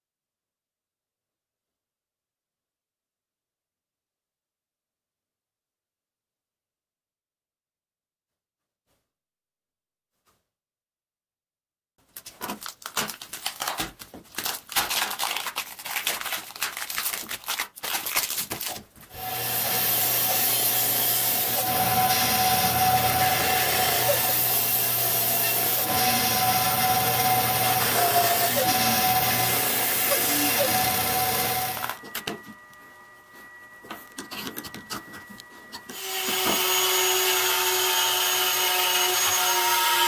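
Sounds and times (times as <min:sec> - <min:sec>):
bandsaw cutting resin and wood: 0:19.1 - 0:32.4, 0:34.2 - 0:40.0.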